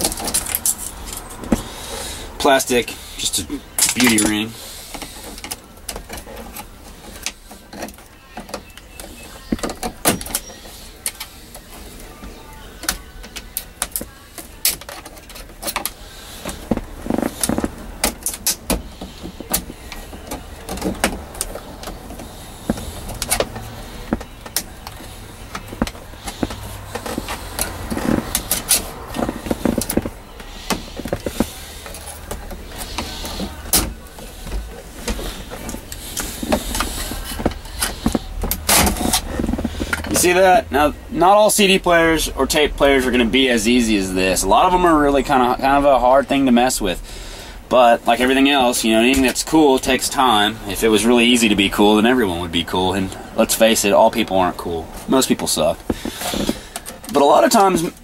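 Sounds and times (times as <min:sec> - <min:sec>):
tools prying and scraping plastic: 0:00.0 - 0:01.8, 0:03.6 - 0:40.6, 0:54.8 - 0:58.0.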